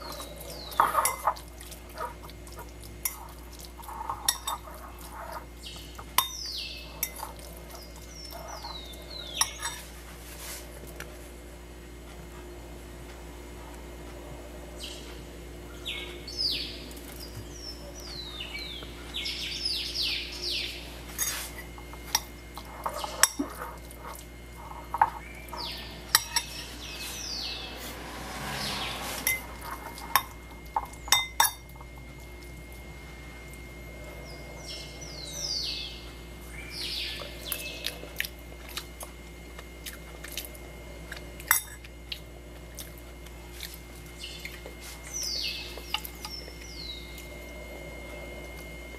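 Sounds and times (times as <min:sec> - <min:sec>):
birds chirping: 0:00.0 - 0:09.8, 0:14.7 - 0:38.1, 0:44.1 - 0:48.4
fork clinking in ceramic bowl: 0:00.7 - 0:01.4, 0:03.9 - 0:04.8, 0:06.2 - 0:06.4, 0:07.0 - 0:07.5, 0:09.4 - 0:09.8, 0:24.8 - 0:26.6, 0:29.2 - 0:31.7, 0:41.5 - 0:41.9.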